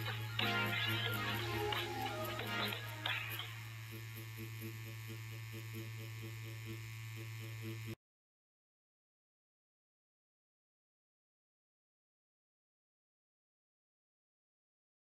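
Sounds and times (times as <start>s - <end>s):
guitar music: 0.0s - 3.6s
tattoo pen motor buzzing: 0.0s - 8.0s.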